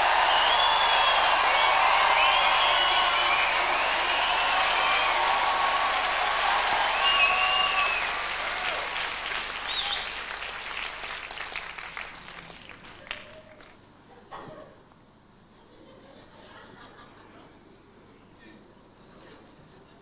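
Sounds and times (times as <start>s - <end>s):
audience applauding and cheering: 0.0s - 13.8s
whistles: 0.1s - 5.2s, 6.8s - 8.2s, 9.6s - 10.2s.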